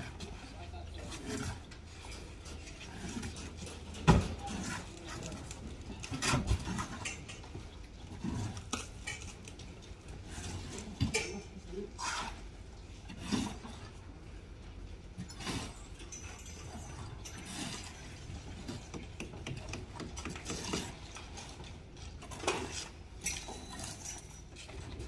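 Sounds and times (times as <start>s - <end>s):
metallic clinks and knocks: 15.1s - 25.0s.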